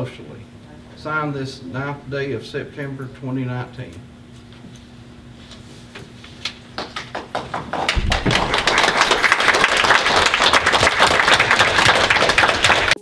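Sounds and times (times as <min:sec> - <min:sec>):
people applauding: 0:06.7 - 0:13.0
low thump: 0:08.0 - 0:08.7.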